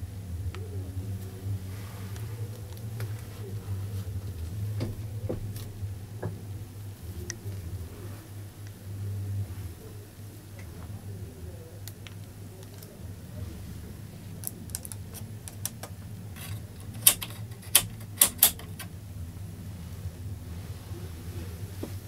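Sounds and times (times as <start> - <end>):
rotary knob clicking: 14.8 - 18.9.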